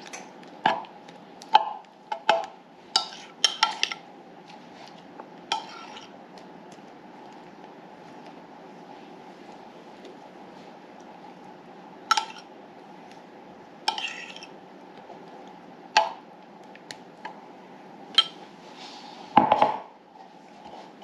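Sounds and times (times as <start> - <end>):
spoon clinking against metal pans: 1.6 - 4.0, 12.1 - 12.5, 18.2 - 18.4.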